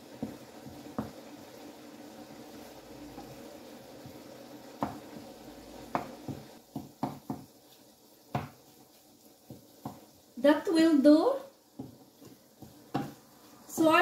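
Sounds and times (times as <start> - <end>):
eggs sizzling in a frying pan: 0.0 - 14.0
wooden spatula knocking on pan: 0.1 - 1.3, 4.0 - 5.2, 5.8 - 7.6, 8.3 - 8.7, 9.4 - 10.1, 11.7 - 14.0.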